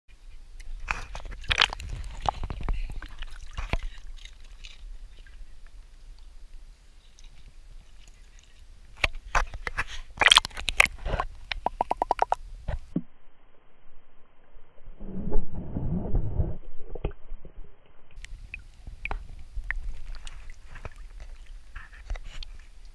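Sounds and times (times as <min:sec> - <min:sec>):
water sloshing and splashing: 0:00.7 - 0:06.4, 0:07.0 - 0:12.4, 0:18.4 - 0:22.9.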